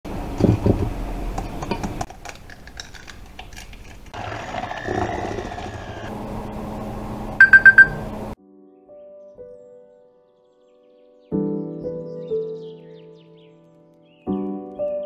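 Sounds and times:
electric hand mixer running: 0:04.1 - 0:07.4
high beeps: 0:07.4 - 0:08.1
soft music: 0:08.4 - 0:15.0.

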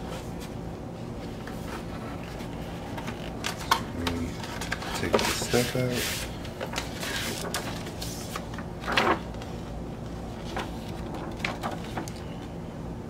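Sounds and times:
paper sleeve sliding rustles: 0:04.2 - 0:12.2.

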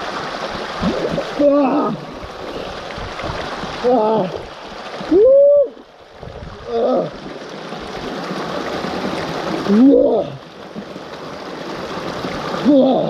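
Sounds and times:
waterfall pouring into pool: 0:00.0 - 0:13.0
person crying out: 0:01.4 - 0:02.0, 0:05.1 - 0:05.7, 0:12.6 - 0:13.0.

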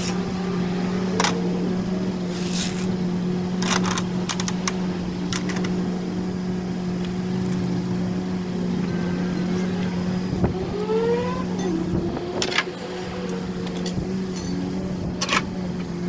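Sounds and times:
short rising whine: 0:05.8 - 0:16.0.

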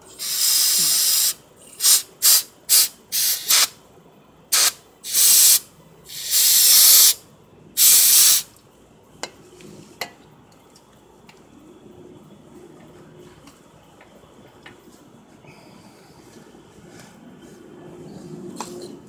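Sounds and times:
aerosol spray hissing: 0:00.2 - 0:03.7, 0:04.5 - 0:07.2, 0:07.8 - 0:08.5.

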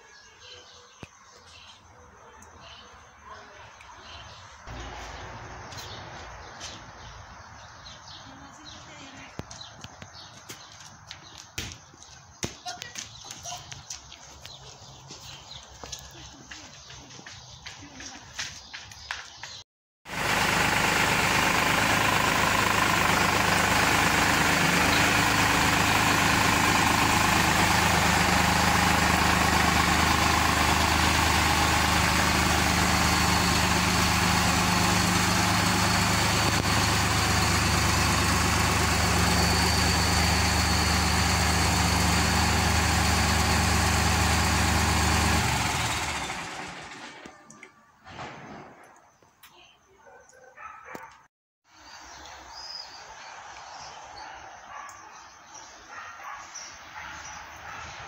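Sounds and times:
tractor diesel engine idling: 0:20.1 - 0:47.6.

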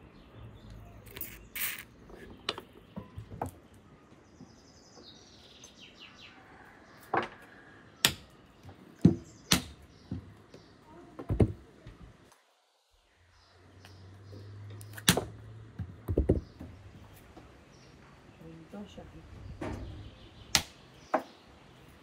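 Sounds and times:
small bird chirping: 0:00.0 - 0:07.1.

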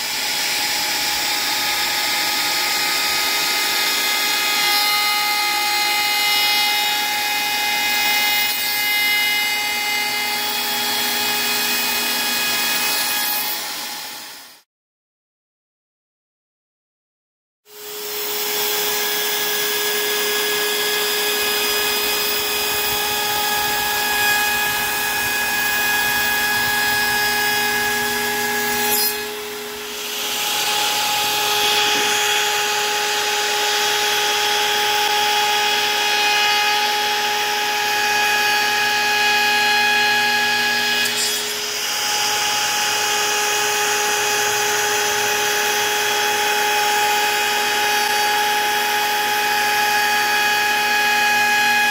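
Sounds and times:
bit cutting wood: 0:00.0 - 0:14.6, 0:17.7 - 0:51.9
router spindle high whine: 0:00.0 - 0:14.6, 0:17.7 - 0:51.9.

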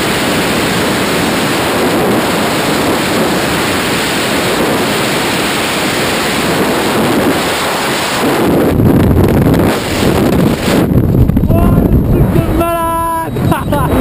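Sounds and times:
freefall wind rushing over microphone: 0:00.0 - 0:14.0
parachute opening buffeting: 0:00.0 - 0:14.0.

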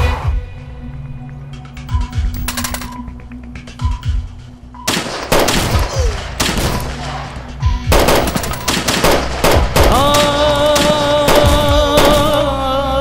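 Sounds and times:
background music with booming hits: 0:01.5 - 0:13.0
automatic rifle fire: 0:04.9 - 0:07.0, 0:07.9 - 0:12.5.

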